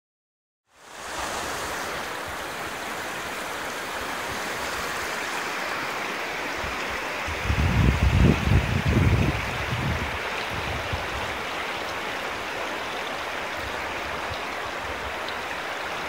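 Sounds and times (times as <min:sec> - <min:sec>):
river water rushing over stones: 0:00.7 - 0:16.0
wind buffeting microphone: 0:06.5 - 0:12.0.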